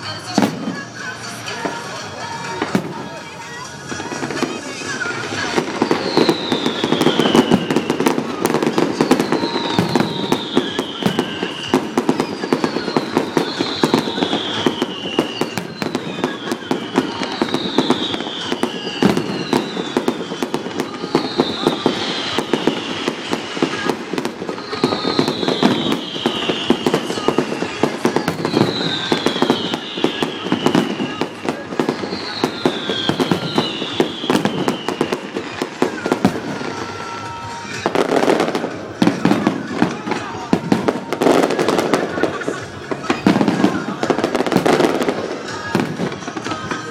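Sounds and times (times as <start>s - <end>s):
fireworks bangs and crackling: 0.0s - 46.9s
falling high whistle: 5.6s - 40.0s.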